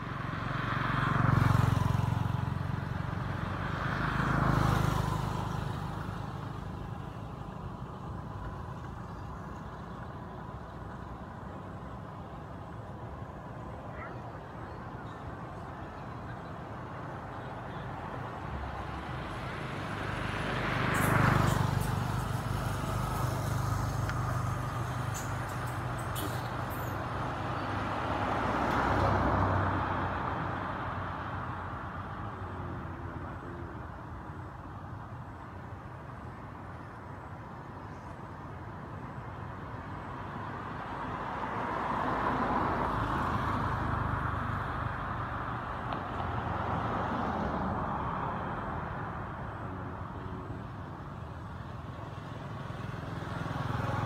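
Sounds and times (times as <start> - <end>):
vehicle passing by: 0.0 - 8.2, 52.0 - 54.0
rushing road noise: 0.0 - 54.0
vehicle engine hum: 0.0 - 54.0.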